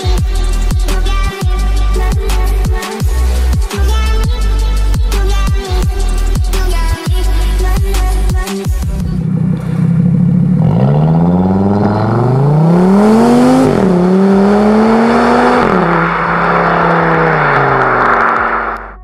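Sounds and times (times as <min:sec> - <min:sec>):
car engine accelerating hard: 0:09.0 - 0:19.0.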